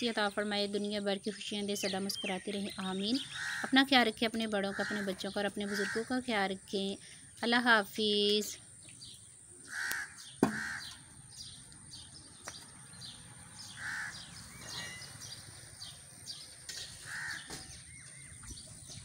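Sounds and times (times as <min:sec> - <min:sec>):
small birds chirping: 0:00.0 - 0:19.0
crow cawing: 0:03.3 - 0:03.8, 0:04.7 - 0:06.1, 0:09.7 - 0:11.0, 0:13.6 - 0:14.3, 0:17.0 - 0:17.6
sharp knock: 0:10.4 - 0:10.7.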